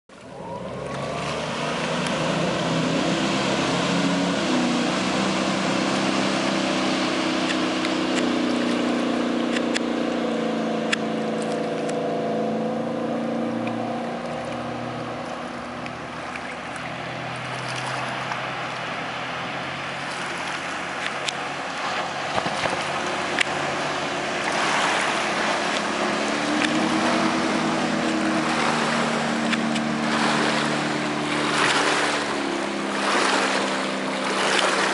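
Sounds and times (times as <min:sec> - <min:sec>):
boat engine drone: 0:00.1 - 0:34.9
hull rushing through water: 0:00.1 - 0:34.9.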